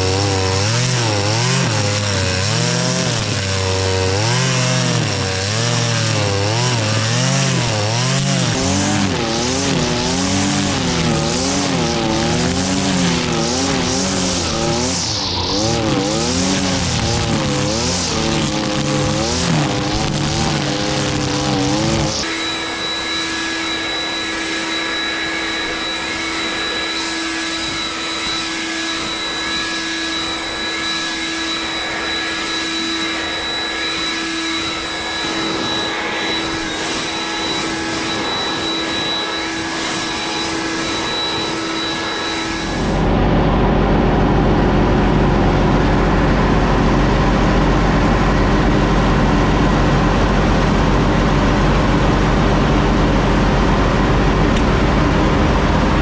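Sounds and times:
brushcutter engine revving: 0.0 - 43.2.

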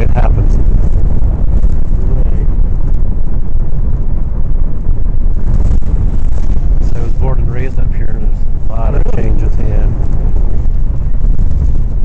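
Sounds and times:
low wind noise on microphone: 0.0 - 12.0.

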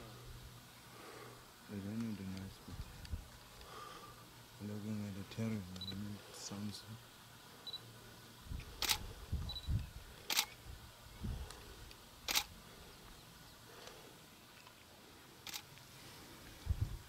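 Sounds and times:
camera shutter clicks: 8.8 - 9.0, 10.3 - 10.6, 12.3 - 12.5, 15.4 - 15.8.

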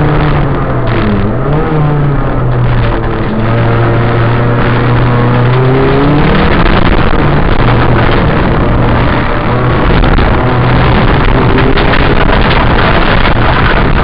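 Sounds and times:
car engine at full throttle: 0.0 - 14.0.

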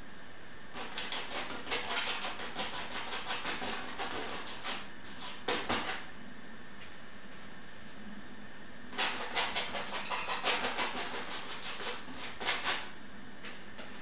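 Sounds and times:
palette knife scraping paint: 0.8 - 6.1, 8.9 - 12.9.

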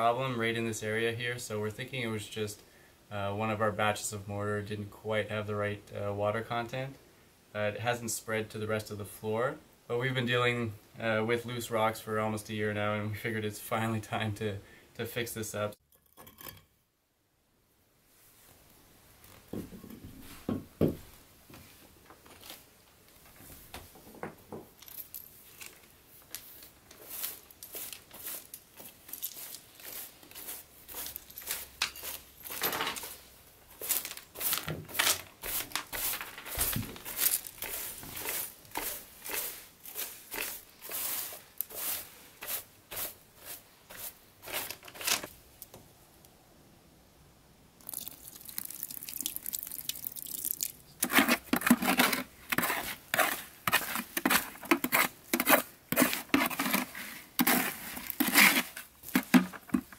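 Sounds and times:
hand broom sweeping grit on stone: 26.4 - 44.8, 51.0 - 59.9
trowel scraping wet mortar: 35.4 - 44.8, 51.0 - 59.9.

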